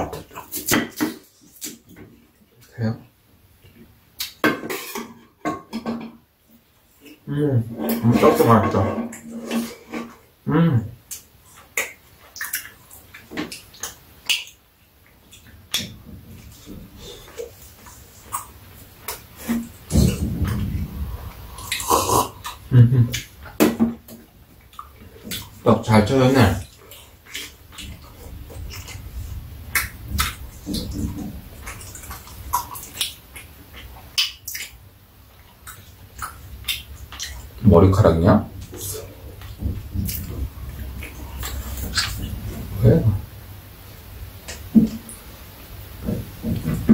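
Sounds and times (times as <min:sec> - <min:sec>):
mouths chewing wet smacks: 0:11.1 - 0:23.6, 0:24.6 - 0:37.6, 0:38.6 - 0:42.8.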